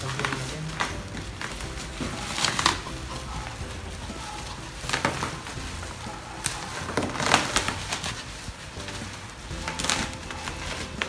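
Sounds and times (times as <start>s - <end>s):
scissors cutting plastic: 0.0s - 3.5s, 6.4s - 8.5s, 9.5s - 11.0s
bubble wrap crinkling and crackling: 0.0s - 11.0s
faint background music: 0.0s - 11.0s.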